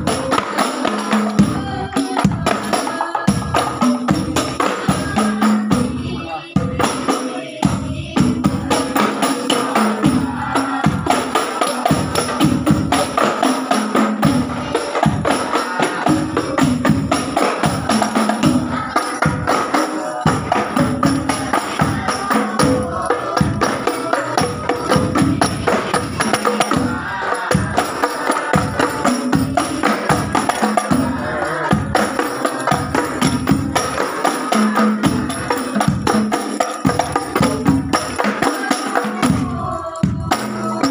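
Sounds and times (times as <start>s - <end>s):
frame drums and hand drum: 0.0s - 40.9s
tambourine-like jingles: 8.9s - 40.9s.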